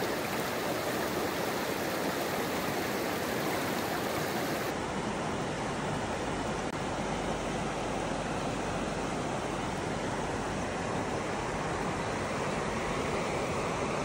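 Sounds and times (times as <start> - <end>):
stream flowing over rocks: 0.0 - 5.4.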